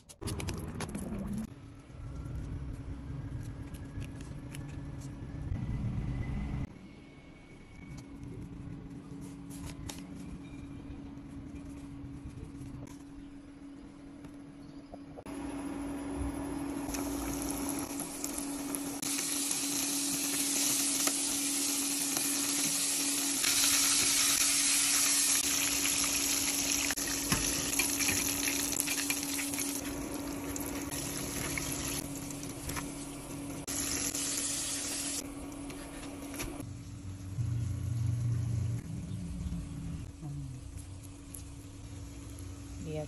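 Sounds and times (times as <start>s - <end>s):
chicken deep-frying in oil: 15.4s - 35.2s.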